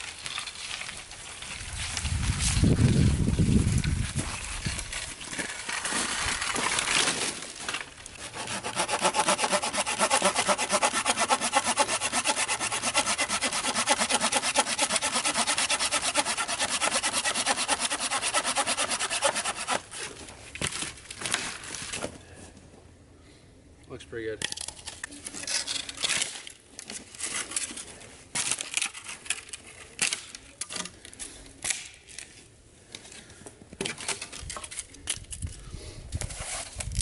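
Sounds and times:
branches rustling and clattering: 0.0 - 8.9, 19.5 - 22.6
hand saw cutting branch: 8.2 - 20.2.

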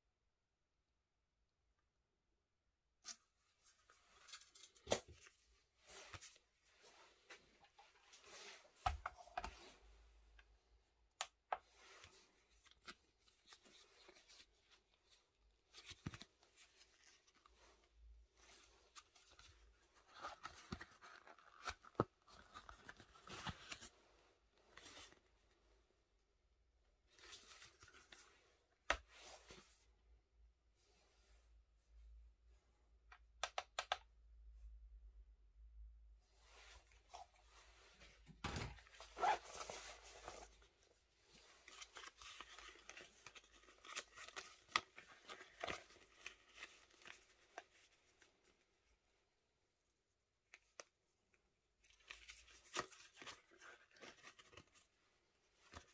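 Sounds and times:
banknotes and wallet rustling: 36.4 - 48.5.

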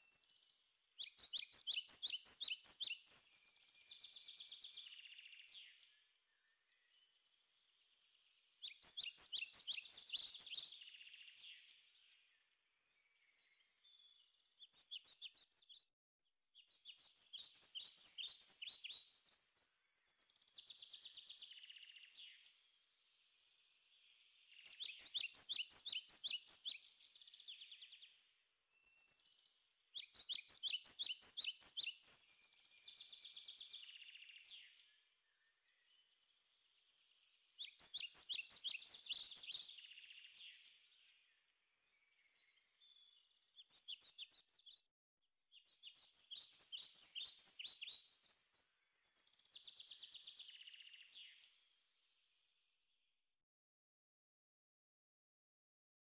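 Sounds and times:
bird chirping and warbling: 0.0 - 7.0, 23.9 - 28.2, 37.6 - 41.3, 45.5 - 48.3.

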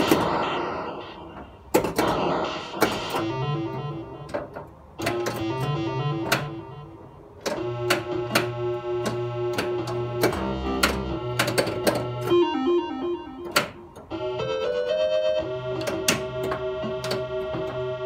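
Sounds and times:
pinball electronic tones: 0.0 - 18.0
pinball mechanical clacks: 7.4 - 12.5, 15.5 - 18.0.

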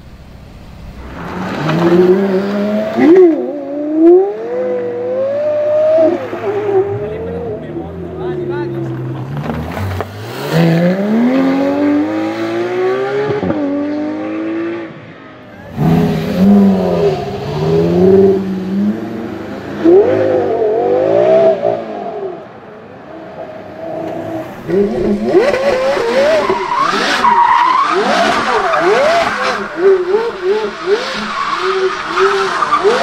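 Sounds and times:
car engine revving hard: 9.4 - 15.0, 15.6 - 22.3, 24.4 - 33.0.

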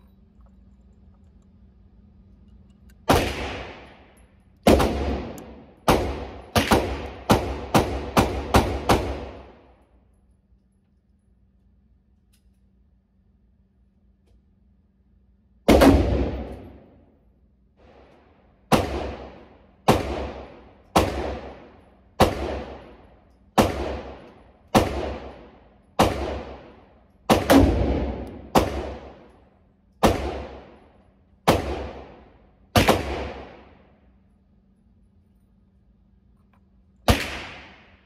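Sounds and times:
gunshots with ringing tail: 3.1 - 9.7, 15.7 - 17.0, 18.7 - 29.3, 30.0 - 33.9, 37.1 - 38.0.

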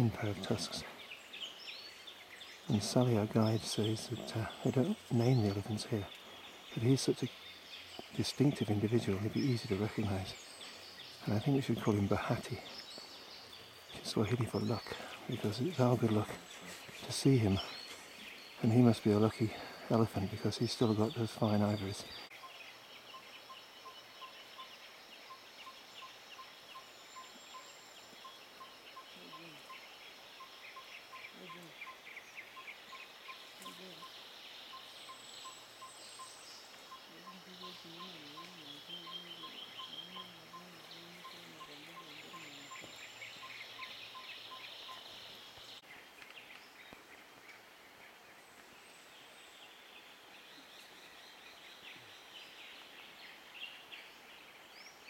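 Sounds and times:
insects chirring: 0.0 - 47.8
wavering low call: 33.6 - 34.1.

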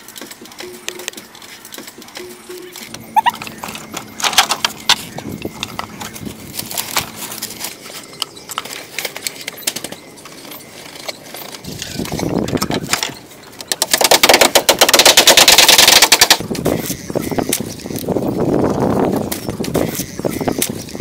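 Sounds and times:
tapping and crackling clatter: 0.2 - 16.8
dry leaves crackling and rustling: 2.8 - 13.1.

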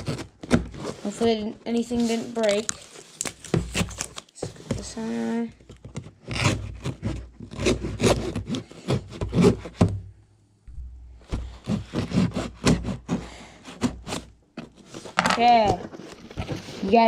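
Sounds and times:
knife scraping through tape: 6.2 - 9.8, 11.6 - 14.3.

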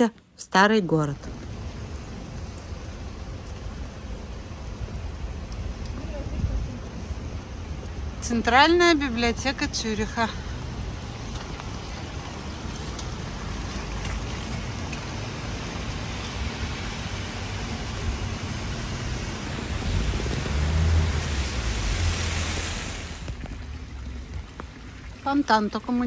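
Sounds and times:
rain on a wet street: 0.3 - 26.0
low rumble: 14.7 - 25.2.

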